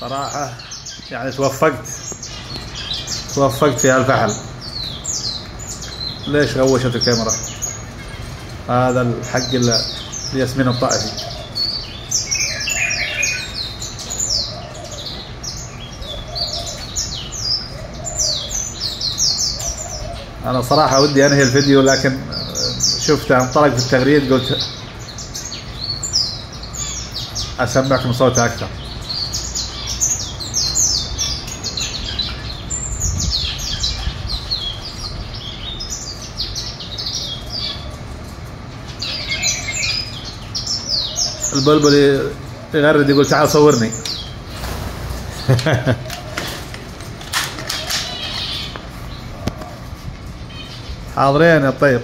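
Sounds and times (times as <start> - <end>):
songbird twittering song: 0.0 - 52.0
steady low hum: 0.0 - 52.0
songbird singing whistled notes: 11.0 - 23.6.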